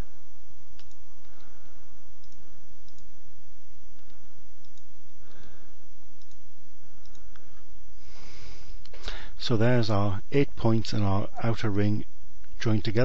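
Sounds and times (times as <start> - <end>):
steady low hum: 0.0 - 13.0
computer mouse clicking: 0.8 - 1.5, 2.2 - 3.1, 4.0 - 5.5, 6.2 - 6.4, 7.0 - 7.6.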